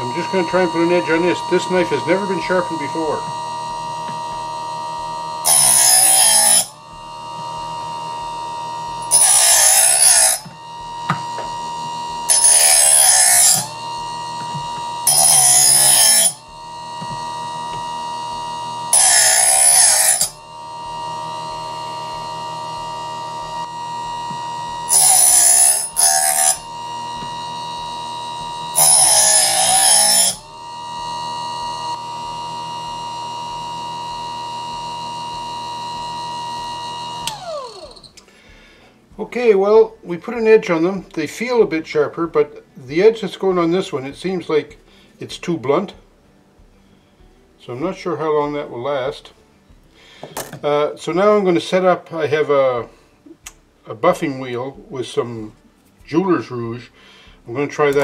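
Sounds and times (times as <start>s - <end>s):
knife sharpener motor whine: 0.0s - 38.8s
knife blade grinding: 5.4s - 6.9s, 9.0s - 17.9s, 18.8s - 20.4s, 24.3s - 30.8s.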